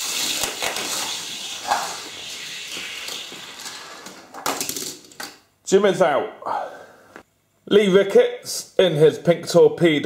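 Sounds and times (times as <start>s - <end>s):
toy cars rolling on plastic track: 0.0s - 5.3s.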